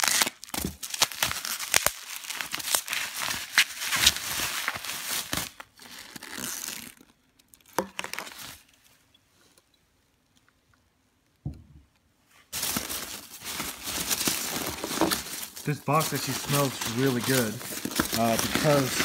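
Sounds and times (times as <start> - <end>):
bubble wrap crinkling: 0.0 - 8.8, 12.5 - 19.0
packing peanuts rustling: 12.5 - 19.0.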